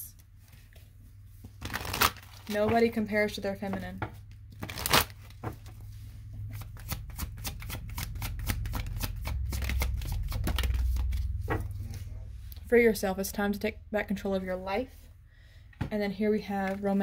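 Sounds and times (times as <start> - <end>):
cards being shuffled: 1.4 - 2.8, 6.5 - 12.0.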